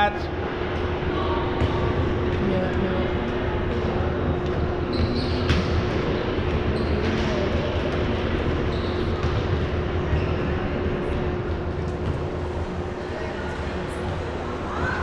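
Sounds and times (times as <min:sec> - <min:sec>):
large hall background noise: 0:00.0 - 0:15.0
ball bouncing on gym floor: 0:01.5 - 0:02.7, 0:03.7 - 0:10.7, 0:11.8 - 0:12.6.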